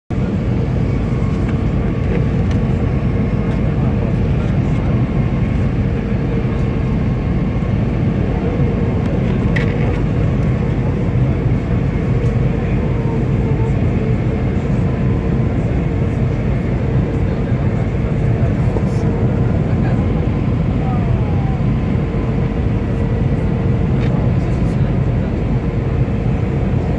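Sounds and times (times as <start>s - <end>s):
airliner cabin jet engine noise: 0.1s - 26.9s.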